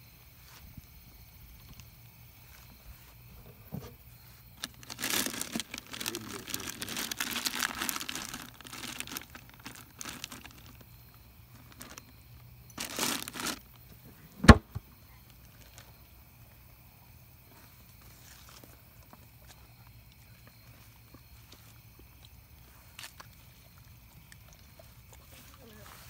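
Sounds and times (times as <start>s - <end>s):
plastic bags crinkling: 4.5s - 13.8s.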